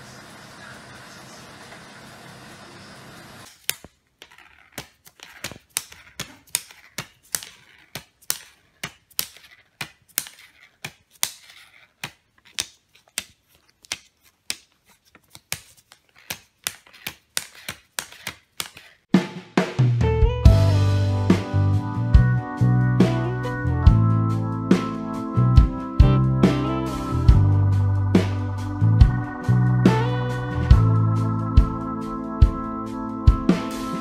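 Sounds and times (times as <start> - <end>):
plastic banknotes crackling: 3.4 - 19.1.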